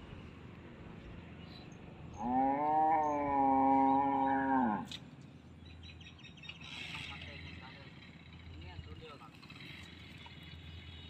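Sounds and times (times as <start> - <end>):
cow mooing: 2.2 - 4.9.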